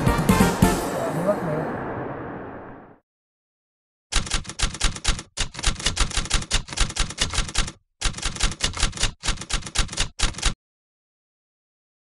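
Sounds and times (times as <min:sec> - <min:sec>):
typewriter keys clacking: 0:04.1 - 0:10.6.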